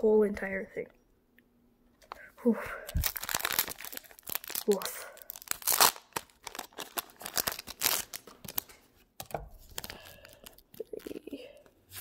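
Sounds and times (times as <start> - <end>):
foil wrapper crinkling and tearing: 2.9 - 8.8, 9.6 - 11.4.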